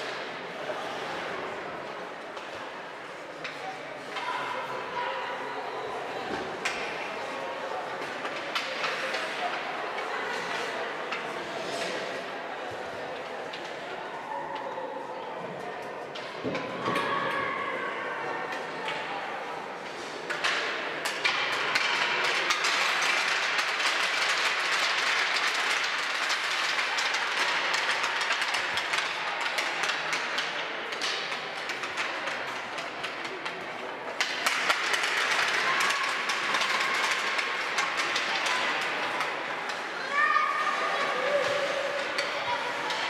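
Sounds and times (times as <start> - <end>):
hockey sticks tapping on ice: 1.8 - 4.3, 6.3 - 7.1, 7.8 - 12.2, 19.8 - 43.0.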